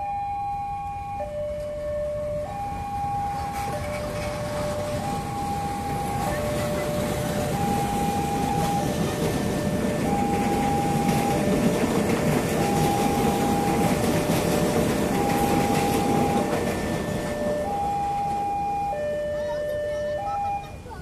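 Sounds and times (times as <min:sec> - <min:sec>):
two-tone level crossing alarm: 0:00.0 - 0:20.8
electric train rumbling past: 0:00.0 - 0:21.0.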